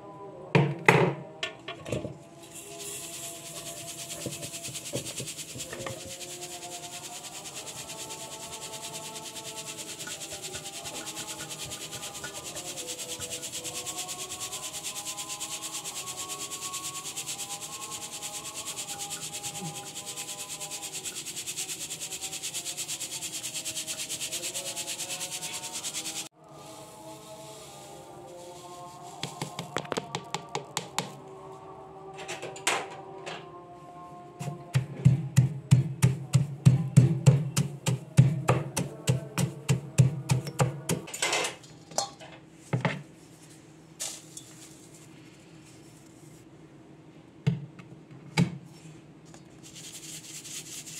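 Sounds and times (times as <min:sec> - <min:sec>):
flour rasping on sieve mesh: 0:02.5 - 0:31.2, 0:49.5 - 0:50.9
pestle pounding in stone mortar: 0:29.2 - 0:31.2, 0:34.7 - 0:41.1.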